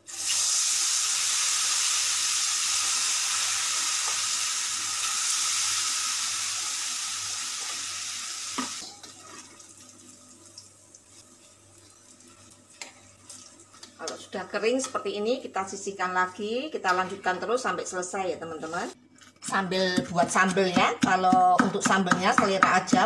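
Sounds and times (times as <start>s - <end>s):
batter sizzling in hot oil: 0.0s - 14.1s.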